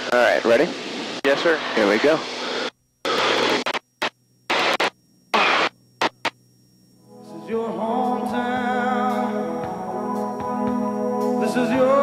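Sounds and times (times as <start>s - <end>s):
headset intercom hiss bursts: 0.0s - 6.4s
background music of held notes: 7.1s - 12.0s.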